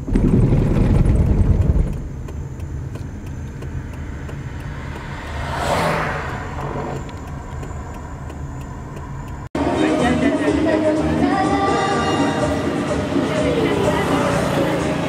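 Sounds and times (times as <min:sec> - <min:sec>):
vehicle engine running at low speed: 0:00.0 - 0:09.6
car passing by: 0:03.4 - 0:10.1, 0:11.9 - 0:15.0.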